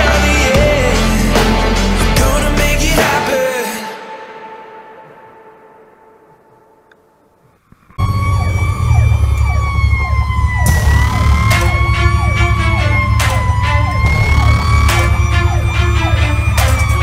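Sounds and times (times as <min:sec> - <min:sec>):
fire engine siren wailing: 0:08.0 - 0:17.0
loud engine drone: 0:08.0 - 0:17.0.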